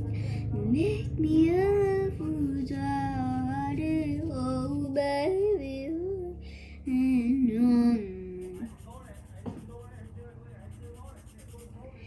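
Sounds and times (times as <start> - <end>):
woman singing slow melody: 0.4 - 8.6.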